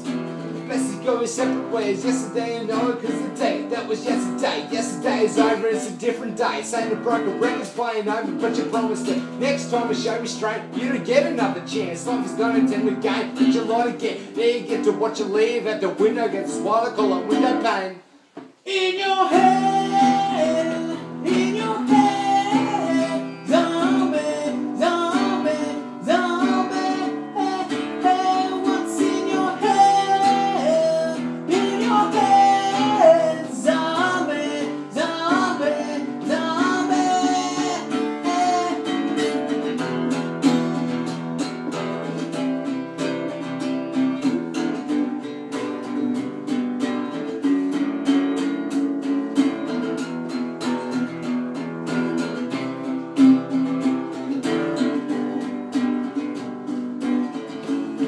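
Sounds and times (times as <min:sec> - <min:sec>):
person singing wordless melody: 0:00.0 - 0:39.8
acoustic guitar strumming: 0:00.0 - 0:58.0.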